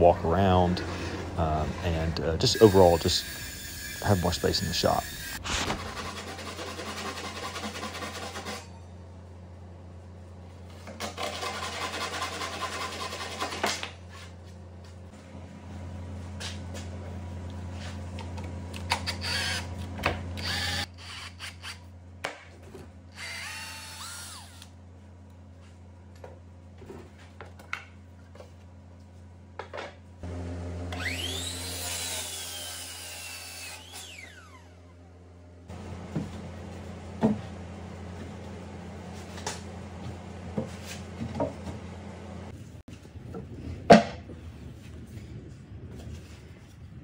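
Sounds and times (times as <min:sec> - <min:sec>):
miter saw motor whine: 0:02.3 - 0:06.2, 0:18.8 - 0:21.9, 0:23.1 - 0:24.8, 0:30.2 - 0:35.1
cordless drill into wood: 0:02.5 - 0:04.2, 0:19.0 - 0:19.7, 0:20.4 - 0:21.8, 0:23.1 - 0:24.7.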